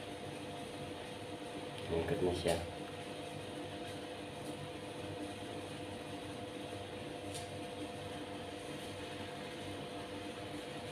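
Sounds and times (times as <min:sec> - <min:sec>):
aquarium filter pump hum: 0:00.0 - 0:10.9
faint motor whine: 0:00.0 - 0:10.9.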